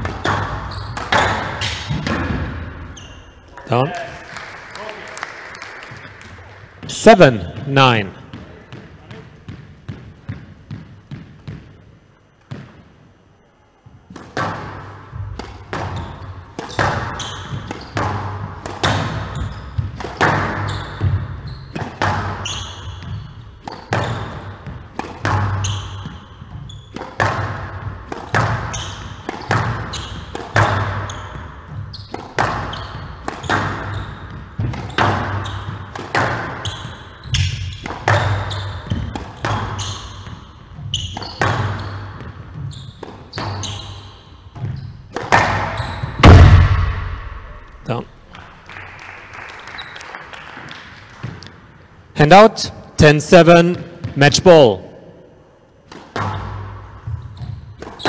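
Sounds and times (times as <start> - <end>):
squash ball hits: 0.0 - 3.0, 14.1 - 47.9, 55.9 - 58.0.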